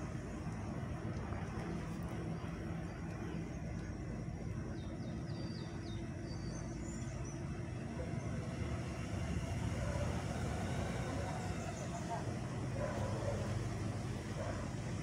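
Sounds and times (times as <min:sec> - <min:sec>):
car engine humming: 0:07.5 - 0:15.0.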